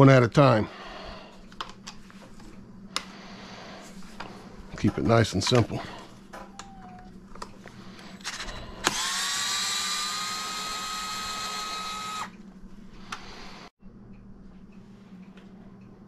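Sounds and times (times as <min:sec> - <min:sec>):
electric screwdriver whining: 0:08.2 - 0:12.4.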